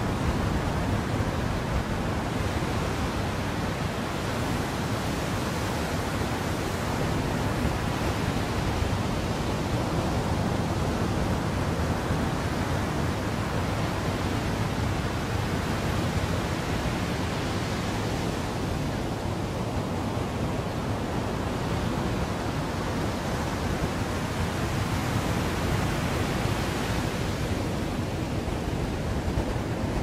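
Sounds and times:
wind rumble on microphone: 0.0s - 30.0s.

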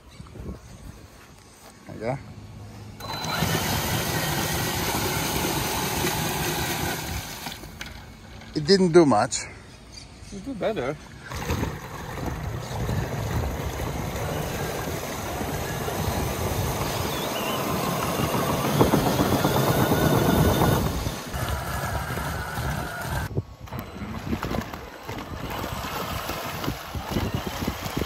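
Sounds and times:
toy truck motor running: 3.0s - 7.7s, 11.4s - 28.0s
wheels churning and splashing water: 3.0s - 9.2s, 11.2s - 28.0s.

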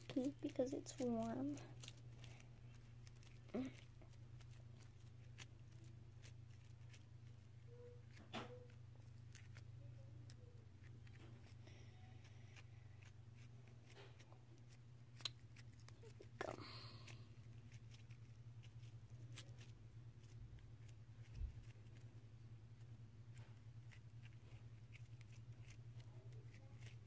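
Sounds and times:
low room hum: 0.0s - 27.0s.

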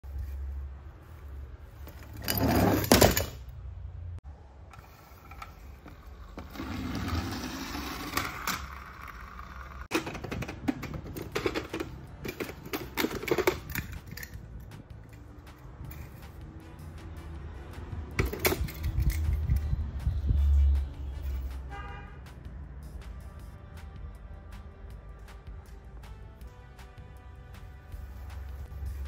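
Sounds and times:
metal toy cars clattering: 1.9s - 3.5s, 4.7s - 14.4s, 18.2s - 19.6s.

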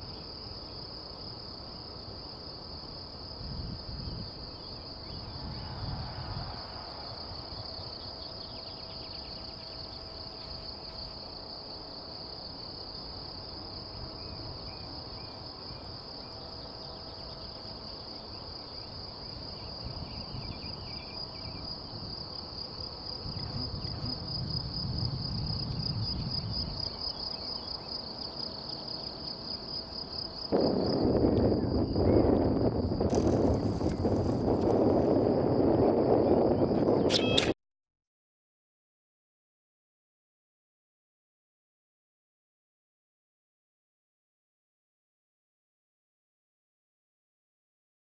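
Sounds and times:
insects chirring: 0.0s - 37.6s
wind rumble on microphone: 3.0s - 11.6s, 18.5s - 28.0s, 30.2s - 37.6s.

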